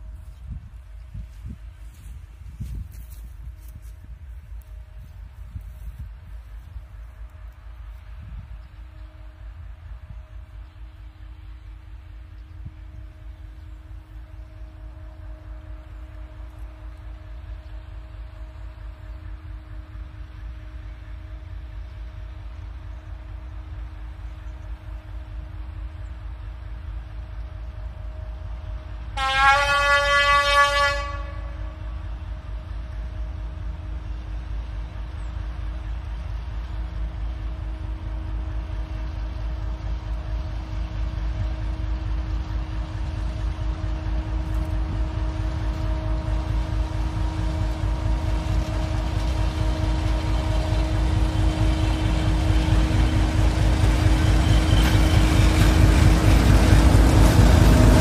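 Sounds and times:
locomotive engine drone: 0:00.0 - 0:58.0
locomotive horn blast: 0:27.9 - 0:34.1, 0:43.5 - 0:58.0.

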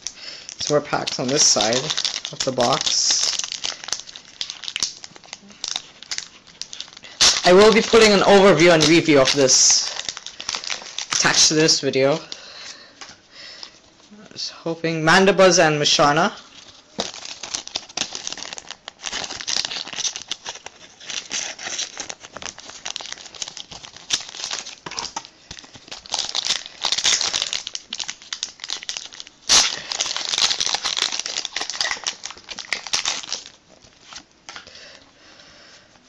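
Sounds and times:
foil wrapper ripping: 0:00.0 - 0:12.4, 0:16.6 - 0:34.3
foil wrapper crinkling: 0:00.0 - 0:14.1, 0:16.0 - 0:35.0.

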